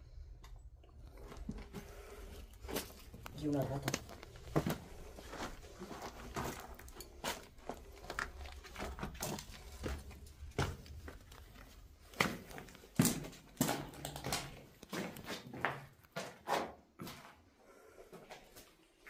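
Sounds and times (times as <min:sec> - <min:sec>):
footsteps crunching on gritty floor: 0:02.6 - 0:17.4.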